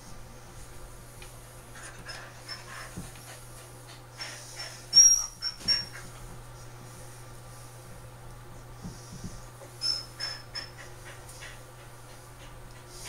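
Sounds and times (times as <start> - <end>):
dog panting: 1.7 - 6.2, 8.7 - 13.0
dog whining: 4.9 - 6.1, 9.8 - 10.8.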